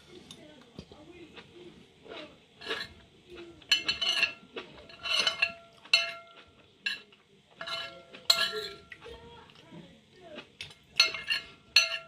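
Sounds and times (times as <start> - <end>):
spoon scraping ceramic plate: 2.6 - 3.0, 3.6 - 9.1, 11.0 - 12.0.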